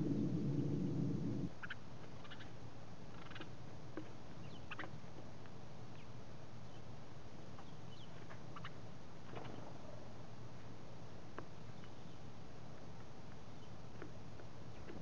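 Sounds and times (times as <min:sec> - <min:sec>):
low background hum: 0:00.0 - 0:15.0
sparrows chirping: 0:01.6 - 0:02.5, 0:04.3 - 0:04.9, 0:05.9 - 0:07.0, 0:07.6 - 0:10.0, 0:11.6 - 0:12.3, 0:13.5 - 0:13.8.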